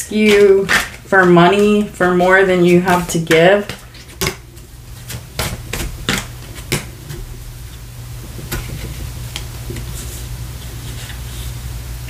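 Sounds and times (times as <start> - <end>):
steady low hum: 0.0 - 12.0
cards clicking and snapping: 3.3 - 4.5, 5.1 - 6.9.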